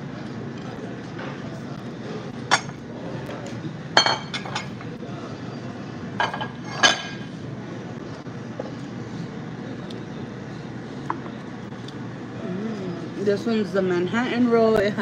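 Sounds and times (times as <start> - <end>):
restaurant background noise: 0.0 - 15.0
dishes clinking: 2.5 - 2.8, 4.0 - 5.0, 6.2 - 7.3.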